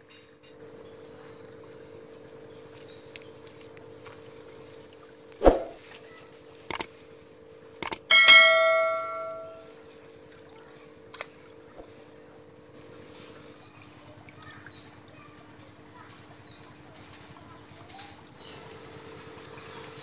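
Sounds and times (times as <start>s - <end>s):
faint steady hum: 0.1s - 20.0s
sharp thump: 5.4s - 5.8s
short clicks: 6.7s - 6.9s, 7.8s - 8.1s
bright bell ding: 8.1s - 9.7s.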